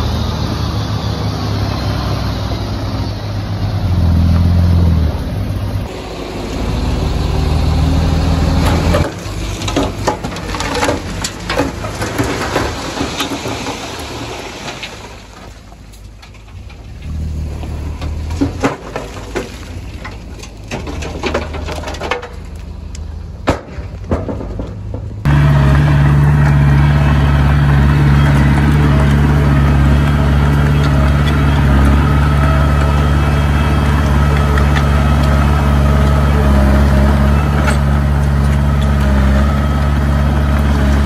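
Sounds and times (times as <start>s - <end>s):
low engine drone: 0.0s - 9.7s
metal and rock clanks: 16.0s - 22.7s, 23.4s - 26.9s.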